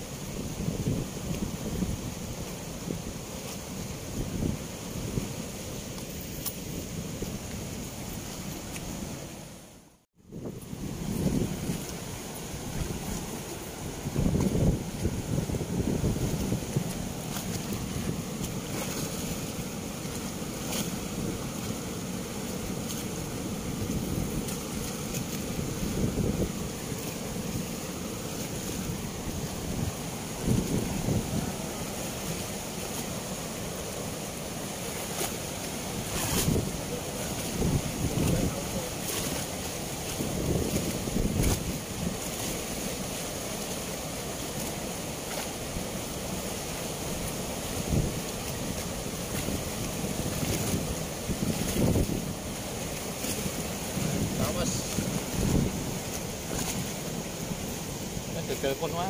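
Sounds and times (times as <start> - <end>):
wind buffeting microphone: 0.0 - 3.2, 3.8 - 5.9, 10.2 - 32.8, 36.0 - 42.7, 47.1 - 58.4
water rushing through sluice gates: 0.0 - 59.0.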